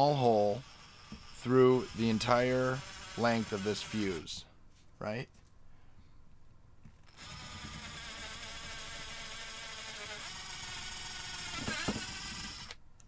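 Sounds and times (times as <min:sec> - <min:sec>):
cordless drill whining: 0:00.3 - 0:04.4, 0:07.1 - 0:12.8.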